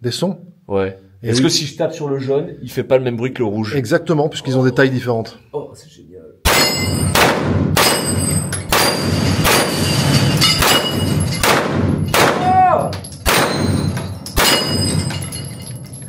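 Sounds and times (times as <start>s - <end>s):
pistol shots: 6.4s - 12.6s, 13.2s - 15.2s.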